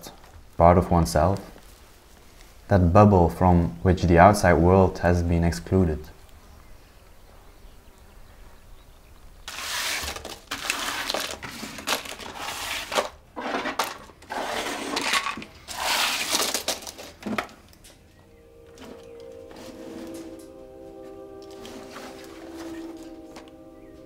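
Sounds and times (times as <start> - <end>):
items scraping on wooden counter: 9.5 - 17.5
soft sustained music tones: 17.6 - 24.0.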